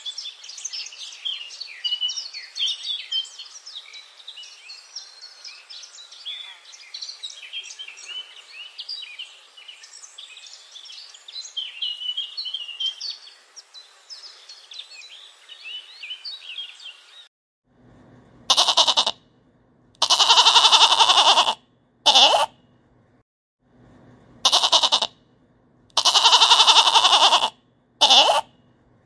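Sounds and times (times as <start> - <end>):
lamb bleating: 18.5 - 19.2, 20.0 - 22.5, 24.4 - 25.1, 26.0 - 28.5
parrots chirping: 28.0 - 28.4.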